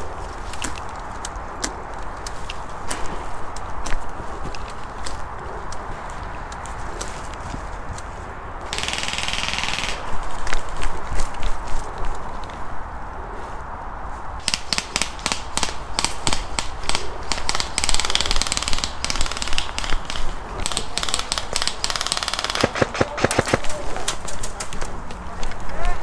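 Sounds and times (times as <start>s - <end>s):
rapid full-auto fire: 8.7s - 10.1s, 14.4s - 23.9s
airsoft gun cracks: 14.4s - 24.5s.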